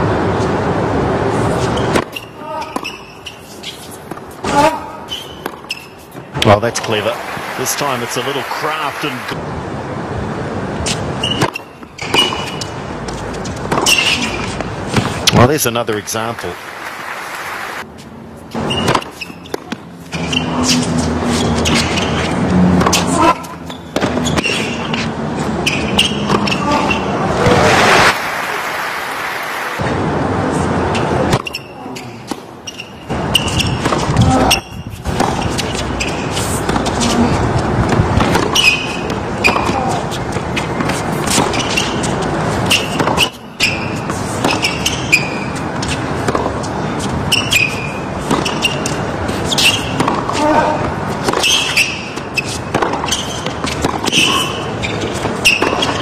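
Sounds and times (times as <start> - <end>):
racket striking tennis ball: 1.6 - 6.2, 10.8 - 15.4, 18.5 - 28.1, 31.0 - 31.7, 32.3 - 56.0
crowd noise: 6.0 - 11.2, 13.7 - 43.1.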